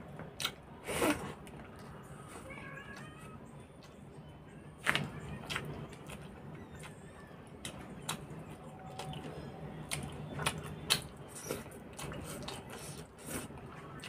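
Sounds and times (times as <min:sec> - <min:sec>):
wet chewing clicks and smacks: 0:07.6 - 0:13.0.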